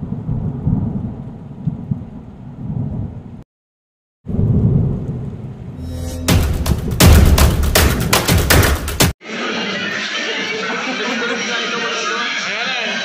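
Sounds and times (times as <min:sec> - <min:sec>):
rain: 0:00.0 - 0:03.4, 0:04.3 - 0:05.8
thunder rumbling: 0:00.0 - 0:03.4, 0:04.3 - 0:08.2.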